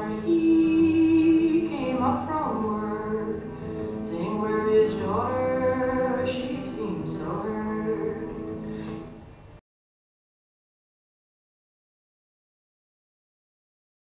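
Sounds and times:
person singing slow ballad: 0.0 - 9.1.

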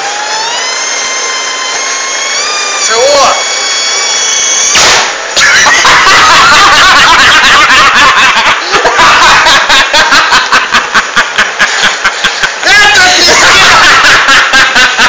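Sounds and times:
car exhaust blast: 3.7 - 5.6
people laughing: 5.4 - 15.0.

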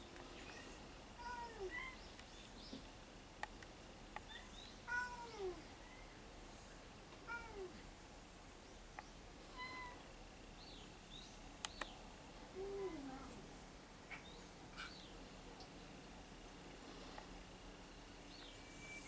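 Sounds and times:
sharp clicks: 11.6 - 11.9.

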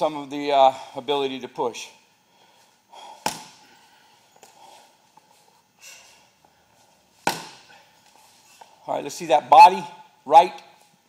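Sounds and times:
gloved punch on heavy bag: 3.2 - 3.6, 7.2 - 7.7.

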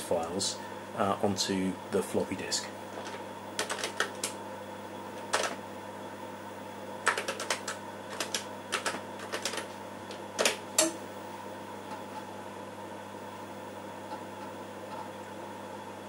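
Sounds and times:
keyboard keystrokes: 3.0 - 4.4, 7.1 - 9.7.

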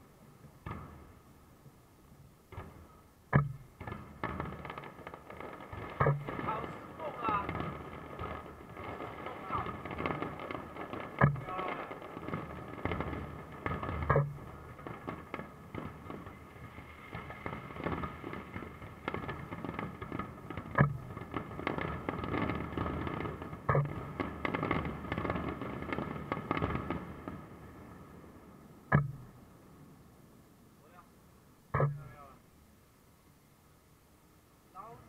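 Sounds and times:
fireworks crackling and popping: 0.0 - 32.5
heavy firework booms: 2.5 - 29.9.

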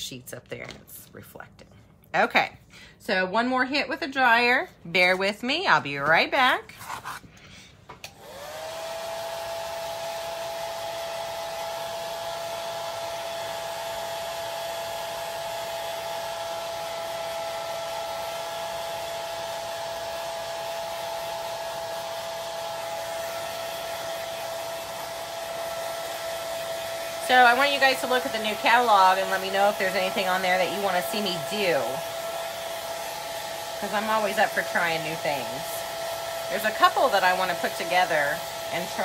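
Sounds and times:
hair dryer whining: 3.1 - 6.5, 7.9 - 39.0.

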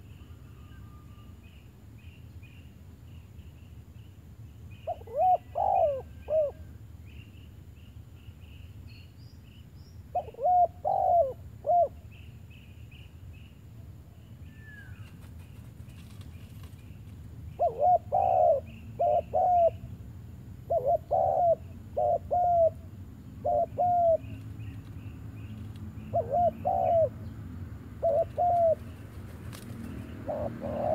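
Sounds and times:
faint high chirping: 0.0 - 19.9
dove cooing: 4.9 - 6.6, 10.1 - 12.0, 17.6 - 19.9, 20.6 - 24.5, 26.0 - 27.3, 28.0 - 30.9.

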